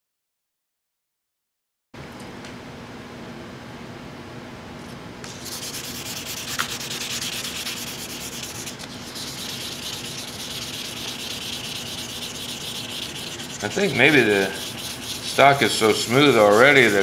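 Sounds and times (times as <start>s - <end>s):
sandpaper rubbing on wood: 5.3s - 17.0s.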